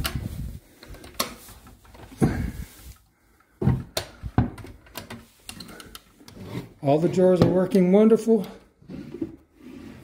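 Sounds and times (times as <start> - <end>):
wooden doors and drawers knocking: 3.6 - 5.1.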